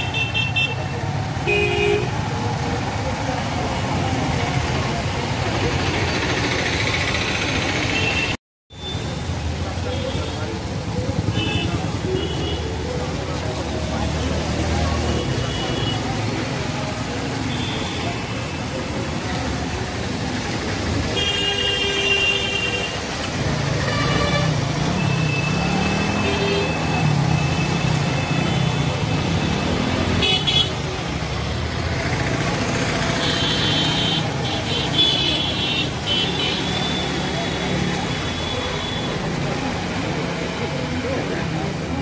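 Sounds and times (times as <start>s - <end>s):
vehicle engines running: 2.2s - 8.4s, 30.8s - 36.0s.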